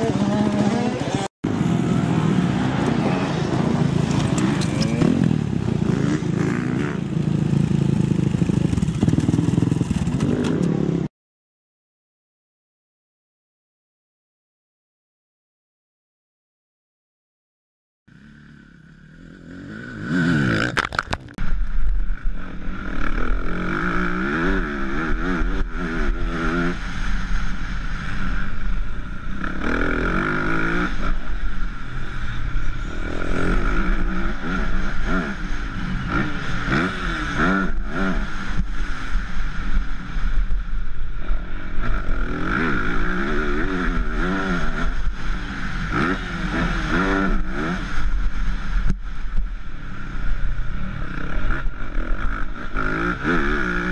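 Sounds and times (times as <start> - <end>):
motocross bike engine revving: 0.0 - 11.1, 18.1 - 20.9, 22.2 - 40.2, 41.2 - 48.8, 50.6 - 53.9.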